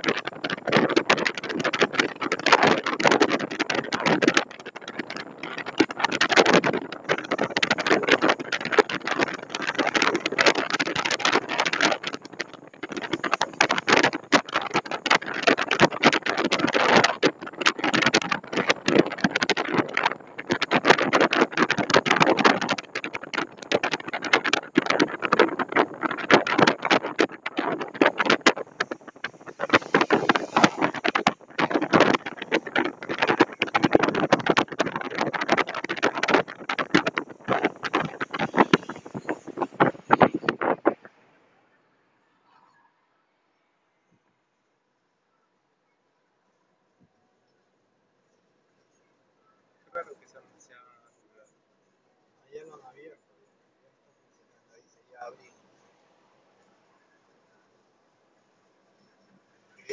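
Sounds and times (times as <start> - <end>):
wind rushing over microphone: 0.0 - 41.2
car road noise: 0.0 - 44.1.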